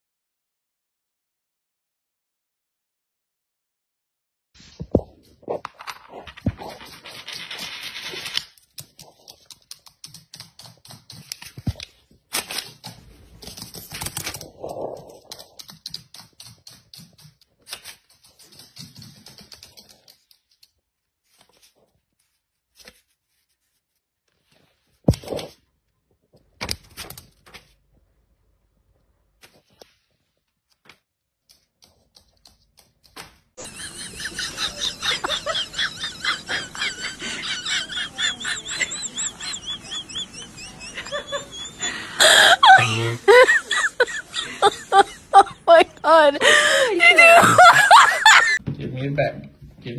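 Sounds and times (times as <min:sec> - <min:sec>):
paper rustling: 0:04.6 - 0:25.7, 0:26.3 - 0:28.1.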